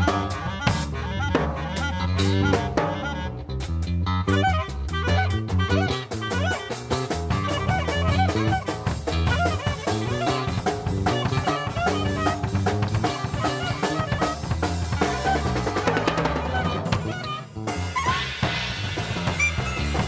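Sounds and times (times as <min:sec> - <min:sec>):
clarinet melody: 0:00.0 - 0:18.6, 0:19.3 - 0:20.0
drum kit playing: 0:00.0 - 0:20.0
plucked electric bass: 0:00.0 - 0:20.0.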